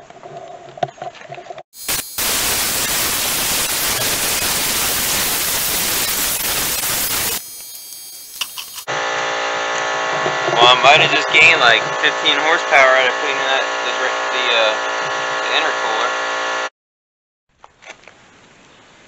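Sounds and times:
compressed air blow gun hissing: 1.8 - 8.9.

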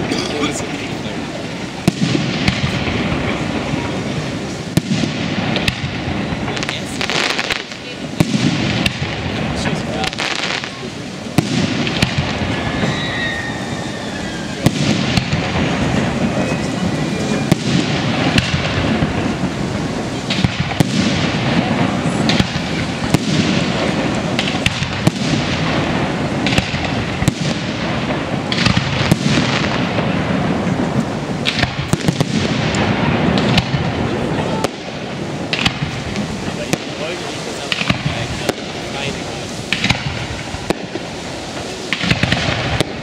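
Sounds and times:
firework bangs: 0.0 - 43.0
firework crackling: 0.0 - 43.0.

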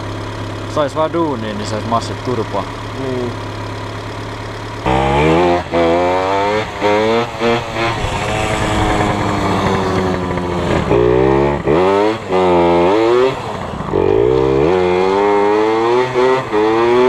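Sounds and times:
car engine idling: 0.0 - 5.3, 6.7 - 11.7
dirt bike engine revving: 4.7 - 17.0.

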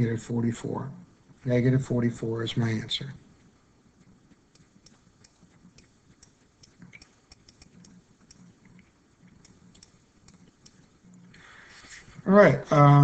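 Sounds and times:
stylus tapping on pen surface: 4.3 - 10.8.

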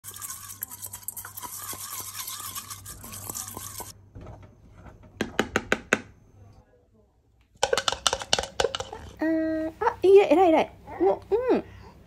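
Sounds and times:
rice being washed in water: 0.0 - 4.0.

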